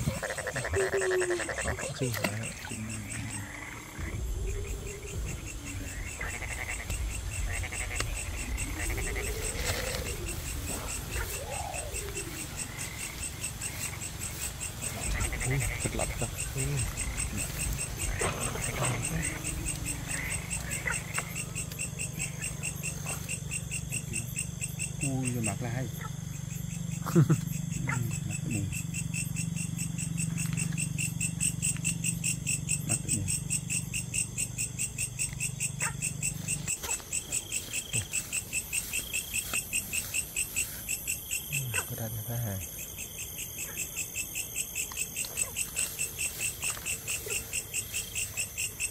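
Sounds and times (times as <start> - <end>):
low hum: 0.0 - 22.8
frogs croaking: 0.0 - 48.9
insects chirping: 0.0 - 48.9.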